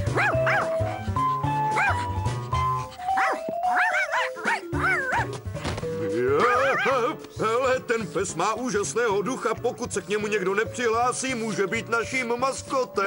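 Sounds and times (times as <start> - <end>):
cartoon dog barking: 0.0 - 1.1, 1.7 - 2.2, 3.1 - 5.4, 6.4 - 7.2
light background music: 0.0 - 13.0.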